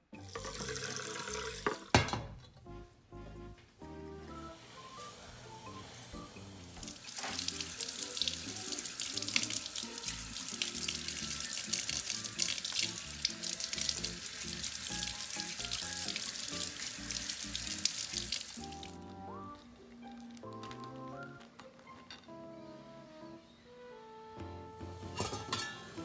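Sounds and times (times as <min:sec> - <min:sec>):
background music: 0:00.0 - 0:26.0
tap water splashing into sink: 0:00.3 - 0:02.3, 0:06.8 - 0:19.0.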